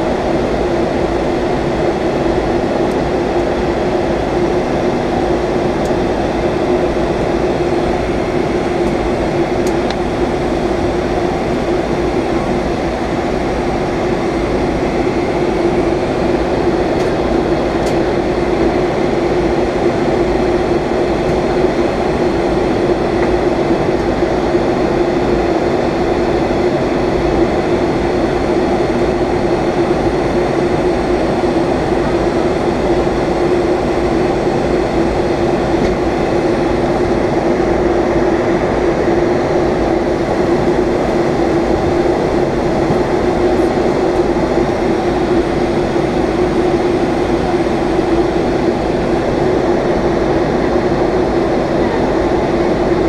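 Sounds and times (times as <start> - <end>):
airliner cabin engine and airflow noise: 0.0 - 53.0
steady hum: 0.0 - 53.0.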